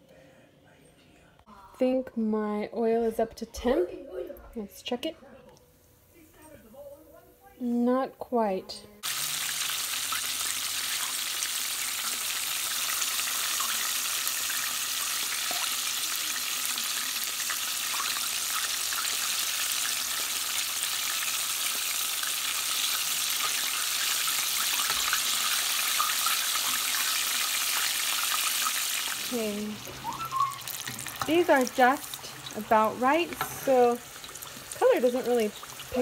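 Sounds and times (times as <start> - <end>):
chicken sizzling in hot oil: 9.0 - 36.0.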